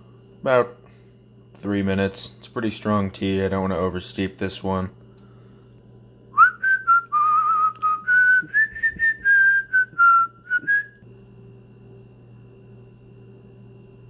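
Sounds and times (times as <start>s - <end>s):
person whistling a tune: 6.4s - 11.0s.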